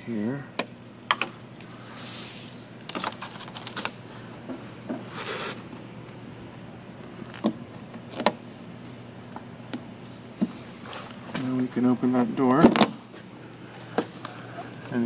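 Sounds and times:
faint steady hum: 0.0s - 15.0s
film rustle: 2.9s - 4.2s.

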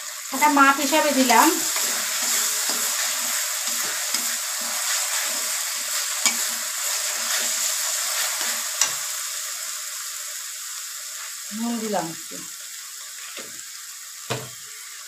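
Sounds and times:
masala sizzling in oil: 0.0s - 15.0s
spatula scraping a pan: 1.0s - 9.2s
spatula knocking on pan: 14.3s - 14.6s.

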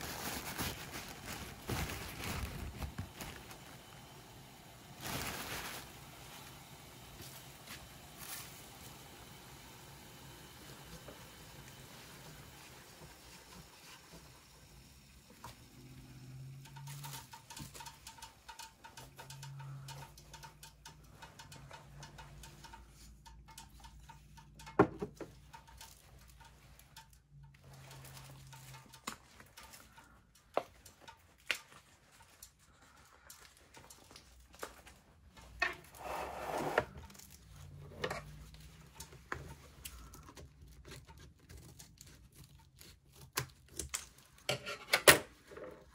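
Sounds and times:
plastic wrapper crinkling: 0.0s - 4.0s, 4.9s - 6.5s, 23.0s - 36.0s
clicks and taps: 16.7s - 32.4s.

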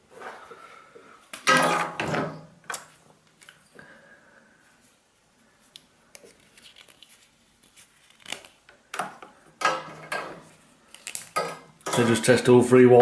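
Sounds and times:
tools clicking and clattering: 11.1s - 12.4s.

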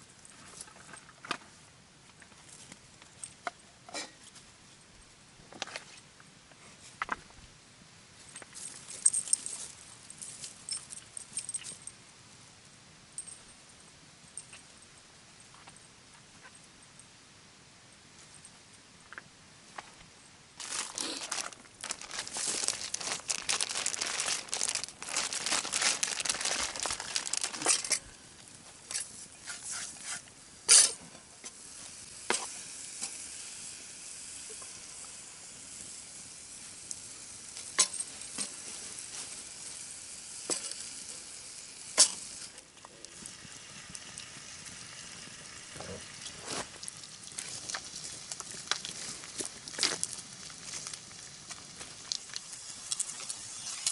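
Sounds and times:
bacon sizzling in a frying pan: 31.6s - 42.5s, 43.2s - 53.9s.

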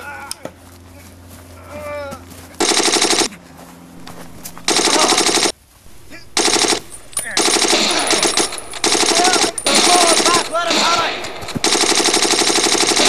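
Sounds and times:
machine-gun fire: 2.6s - 3.3s, 4.0s - 13.0s.

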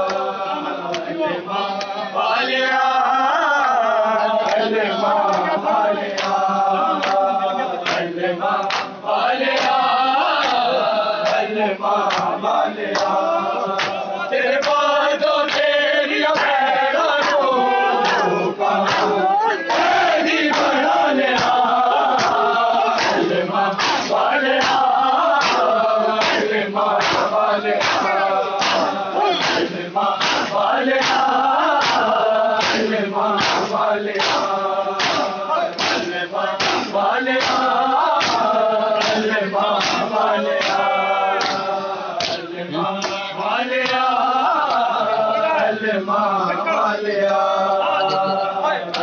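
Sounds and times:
men chanting together: 0.0s - 49.0s
hands striking chests: 23.8s - 40.8s.

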